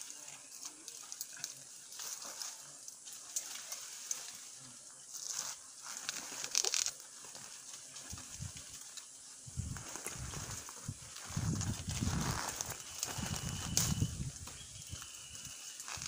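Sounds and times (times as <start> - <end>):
hands rustling honeycomb: 5.0 - 16.0.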